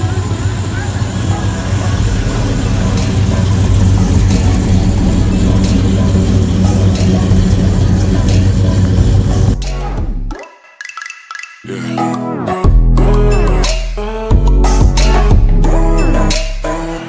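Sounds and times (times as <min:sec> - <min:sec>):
car engine rumbling at low revs: 0:00.0 - 0:10.3.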